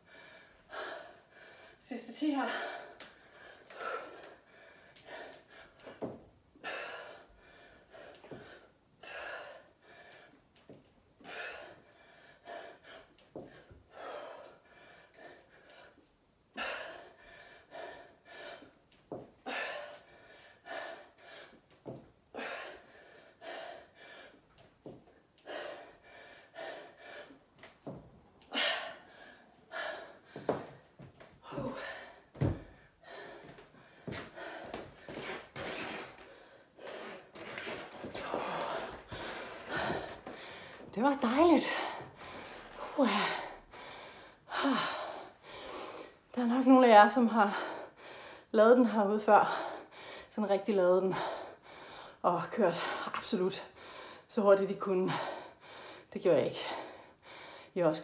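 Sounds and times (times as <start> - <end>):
woman breathing hard and gasping: 0.0 - 10.4, 11.2 - 46.4, 47.4 - 48.6, 49.4 - 50.3, 51.1 - 54.3, 55.0 - 57.8.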